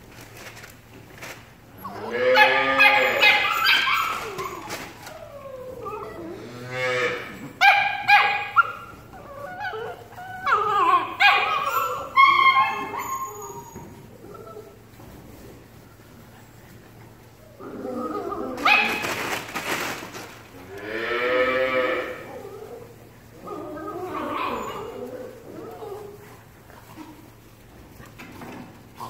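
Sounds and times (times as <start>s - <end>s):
puppies yelping and whining: 1.8s - 19.8s, 22.1s - 29.0s.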